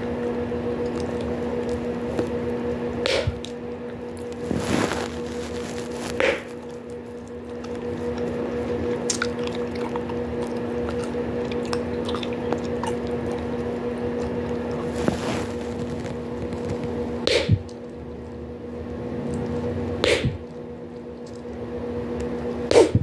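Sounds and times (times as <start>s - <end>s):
gum chewing squishing and smacking: 0.0s - 4.5s, 5.8s - 22.4s
low hum: 0.0s - 23.0s
bubblegum pops: 17.3s - 17.7s, 20.0s - 20.4s.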